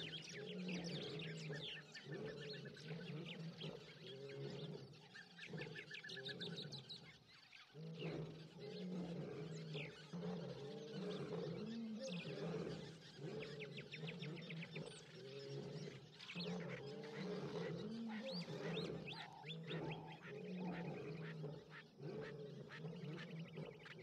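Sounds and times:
small birds trilling: 0.0 - 24.0
lions roaring: 7.9 - 24.0.

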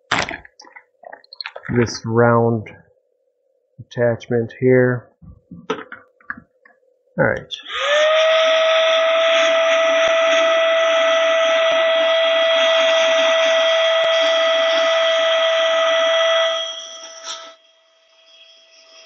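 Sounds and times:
handheld vacuum motor whine: 7.6 - 19.0.

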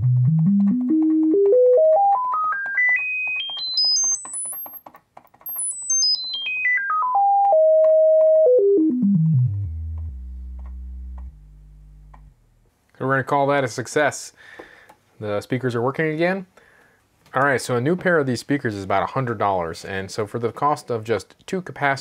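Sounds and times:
sine test tone stepping in pitch: 5.5 - 12.4.

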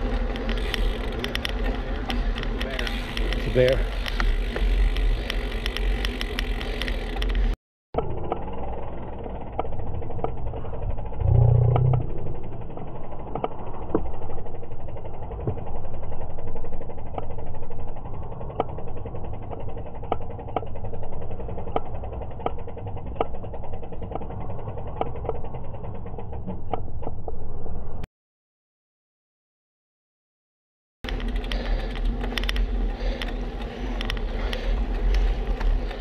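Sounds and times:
wind and road noise: 0.0 - 11.2, 31.1 - 36.0
low rumble: 0.0 - 28.1.

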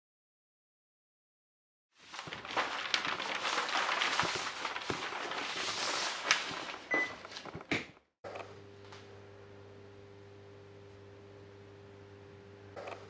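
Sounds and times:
paper sheets rustling: 2.0 - 8.0.

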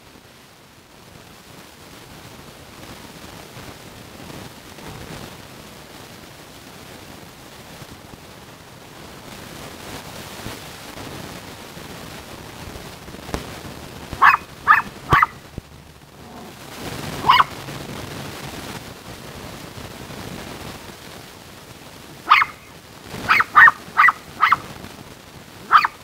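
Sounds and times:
small dog barking: 14.2 - 15.5, 16.2 - 17.6, 22.2 - 24.7, 25.6 - 26.0.

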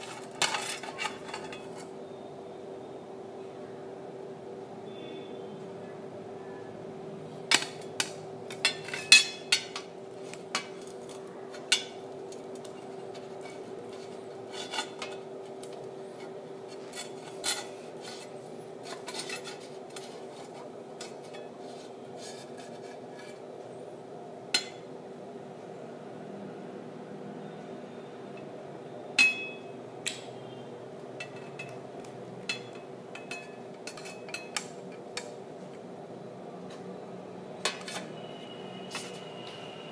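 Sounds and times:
glass and metal clinking: 8.6 - 9.9.

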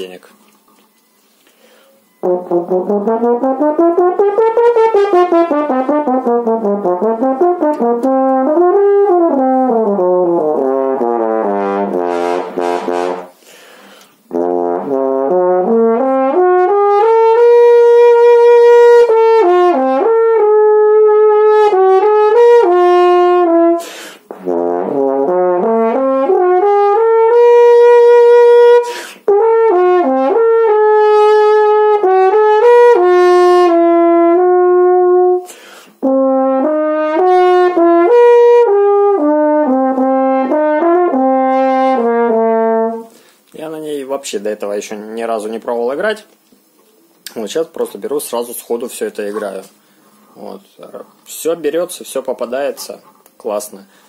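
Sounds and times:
french horn playing solo: 2.2 - 13.4, 14.3 - 43.2.

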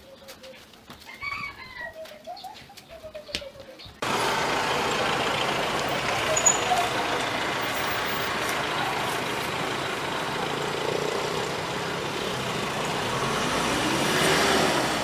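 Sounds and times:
urban background noise: 0.0 - 15.0
motor vehicle engine running: 4.0 - 15.0.

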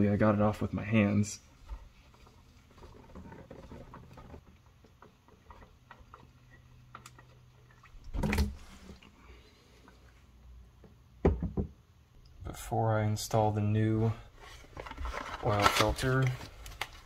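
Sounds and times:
oil trickling and dripping: 1.6 - 10.5.

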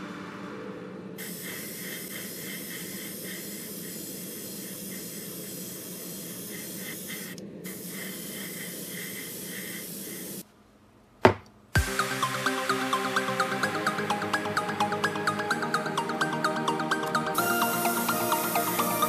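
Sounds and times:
paint sprayer hissing: 1.2 - 10.4, 15.0 - 19.0.

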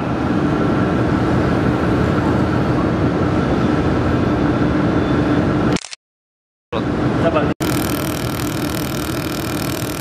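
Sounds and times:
steady machine tones: 7.6 - 10.0.

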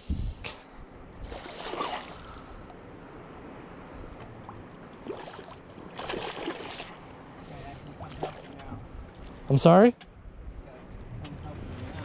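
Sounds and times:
wind on microphone: 0.0 - 0.6
water splashing around boat: 1.2 - 2.7, 3.7 - 9.8.

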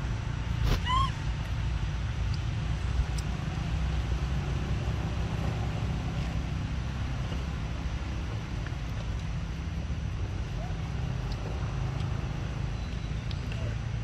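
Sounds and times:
low outdoor rumble: 0.0 - 14.0
faint short call: 0.7 - 1.2.

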